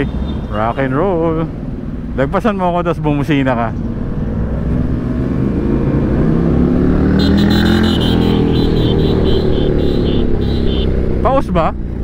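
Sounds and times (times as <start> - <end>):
motorcycle accelerating past: 4.2 - 11.2
horn short beeps: 7.2 - 10.9.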